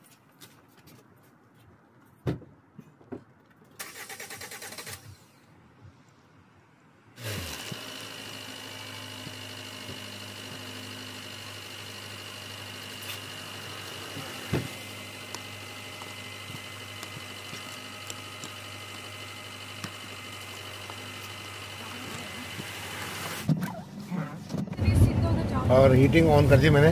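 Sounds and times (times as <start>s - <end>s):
thump: 2.2s - 2.5s
car engine starting and idling: 3.8s - 5.5s, 7.1s - 26.9s.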